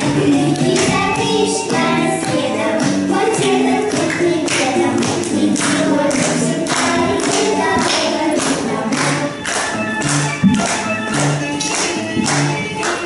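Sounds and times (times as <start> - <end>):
girls singing: 0.0 - 9.6
backing track with steady beat: 0.0 - 13.0.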